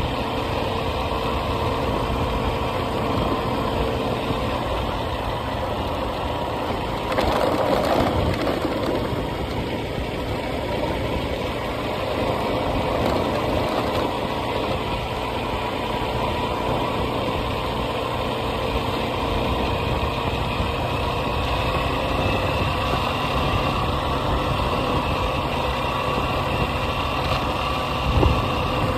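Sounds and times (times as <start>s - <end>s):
vehicle engine running: 0.0s - 28.9s.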